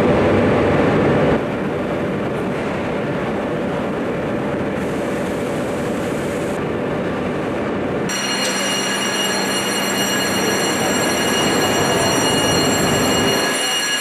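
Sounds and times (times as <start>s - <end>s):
industrial machinery noise: 0.0s - 14.0s
high steady machine whines: 8.1s - 14.0s.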